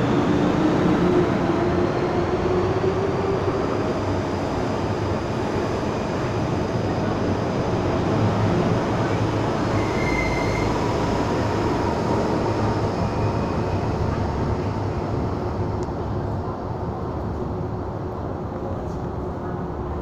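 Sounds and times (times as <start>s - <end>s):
train pulling out: 0.0s - 15.7s.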